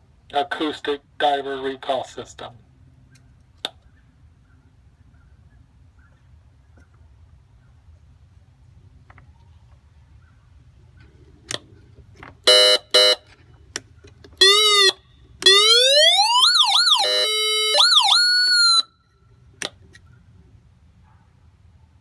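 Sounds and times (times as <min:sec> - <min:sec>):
buzzing horn blasts: 0:12.4 - 0:13.3
underwater recall siren: 0:14.4 - 0:19.0.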